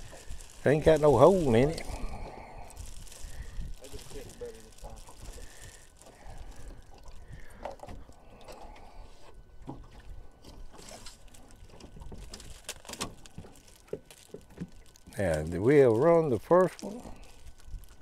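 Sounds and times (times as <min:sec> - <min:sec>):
plastic bag handled: 0:00.0 - 0:07.5, 0:10.7 - 0:18.0
water lapping against a boat: 0:00.0 - 0:15.2
wind on microphone: 0:01.3 - 0:05.3
net knocking and rustling: 0:10.8 - 0:15.1.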